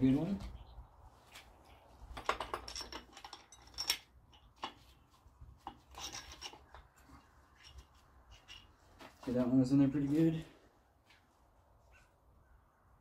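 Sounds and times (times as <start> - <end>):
metal scrapes and clicks: 5.6 - 8.8.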